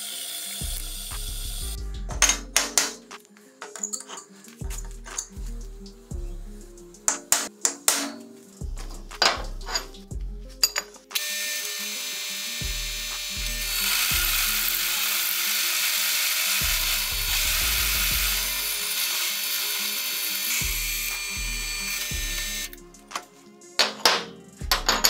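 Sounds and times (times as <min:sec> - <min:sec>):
drill press cutting steel: 0:11.2 - 0:22.8.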